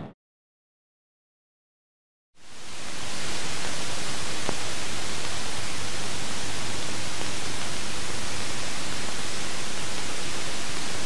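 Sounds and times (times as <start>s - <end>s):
jet engine running: 2.6s - 11.0s.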